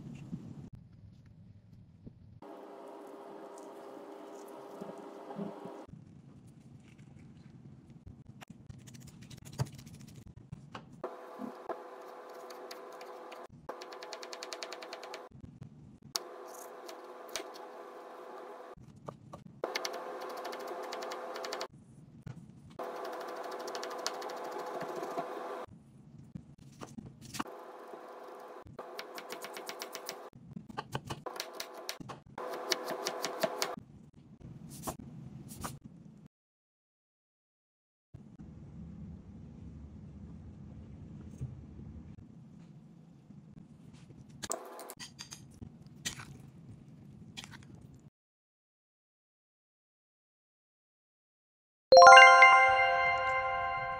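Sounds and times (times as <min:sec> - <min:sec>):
knife chopping on cutting board: 0:32.5 - 0:33.7.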